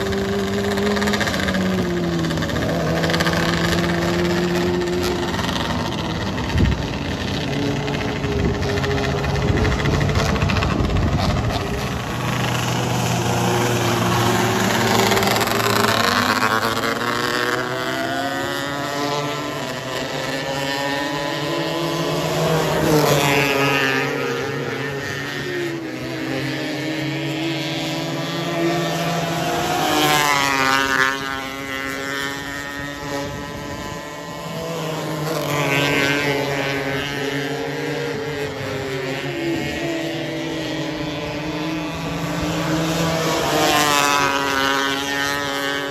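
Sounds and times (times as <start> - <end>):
cars sweeping past: 0.0 - 45.9
race car engines revving: 0.0 - 45.9.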